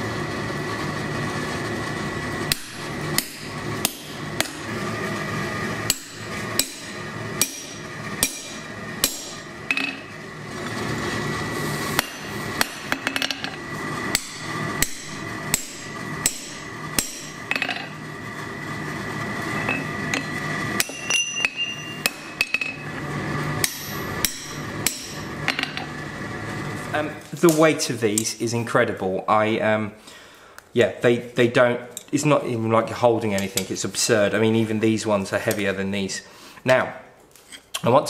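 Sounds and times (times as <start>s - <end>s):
hammer striking punch on metal: 2.5s - 4.6s, 5.9s - 10.0s, 12.0s - 13.4s, 14.1s - 17.8s, 19.7s - 22.8s, 23.6s - 25.8s.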